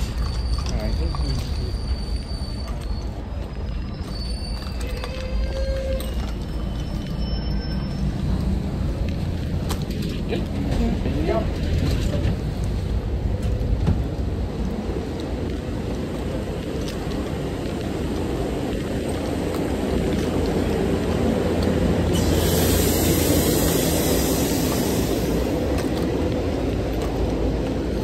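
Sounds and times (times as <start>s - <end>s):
train rumbling: 0.0s - 28.0s
high hiss: 22.1s - 25.7s.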